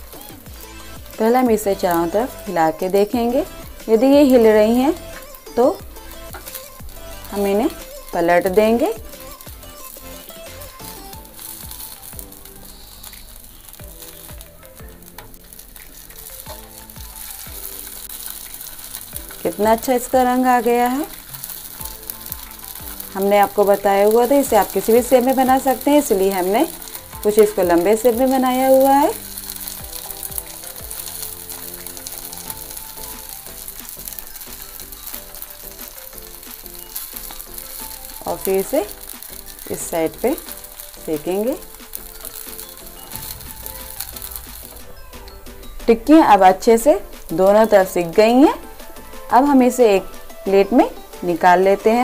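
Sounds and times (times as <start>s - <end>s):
background music with beat: 0.0s - 52.0s
oil sizzling: 0.0s - 52.0s.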